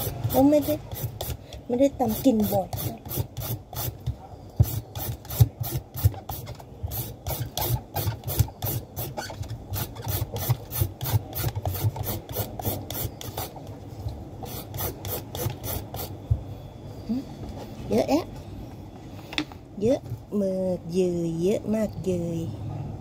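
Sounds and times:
peeler scraping papaya: 0.0 - 13.7, 14.4 - 16.2.

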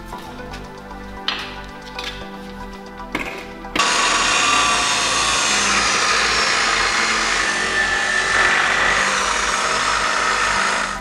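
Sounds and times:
angle grinder cutting steel: 3.7 - 11.0.

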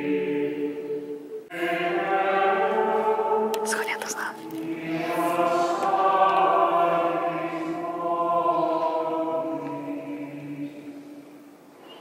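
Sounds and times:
choir singing chant: 0.0 - 11.3.

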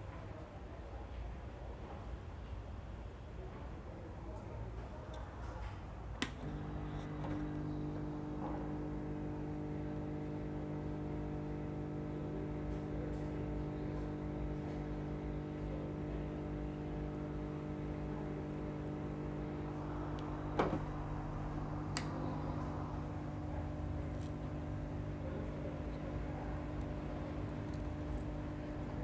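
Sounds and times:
electrical hum: 6.1 - 29.0.

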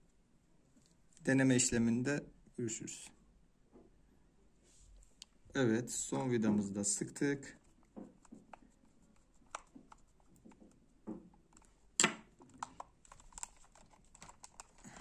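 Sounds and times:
plastic mouse clicks and taps: 7.8 - 14.8.

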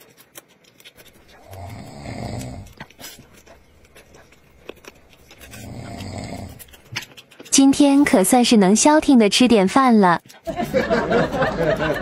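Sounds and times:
eating and chewing clicks: 0.0 - 10.5
man snoring: 1.4 - 2.9, 5.5 - 6.7.

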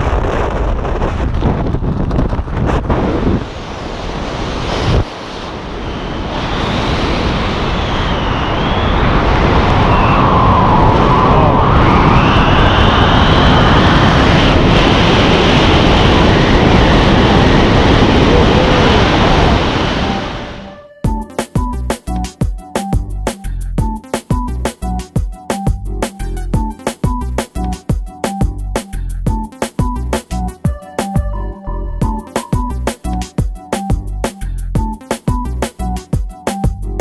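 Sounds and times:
wind rushing over microphone: 0.0 - 20.7
faint wavering whistle: 7.6 - 9.2, 19.9 - 21.4.

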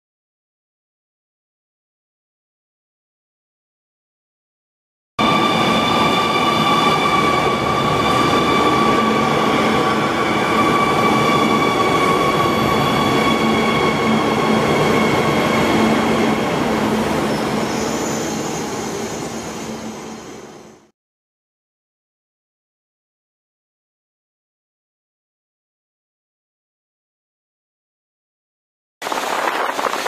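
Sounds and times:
high-speed train rushing past: 5.2 - 20.9, 29.0 - 30.0.

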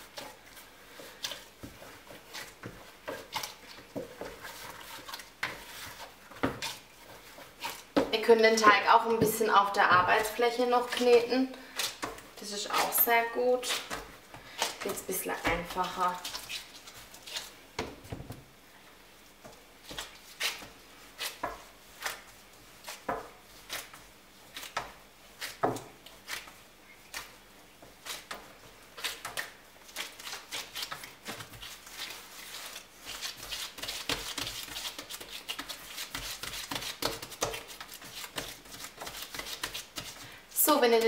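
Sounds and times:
hands squeezing dough: 0.0 - 8.2, 10.2 - 41.0
dough slapping on counter: 32.7 - 40.3.

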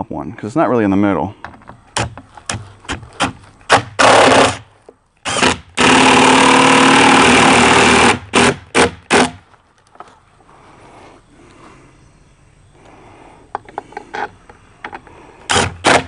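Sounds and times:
power drill driving screws: 3.2 - 4.6, 5.2 - 9.4, 15.5 - 16.0.

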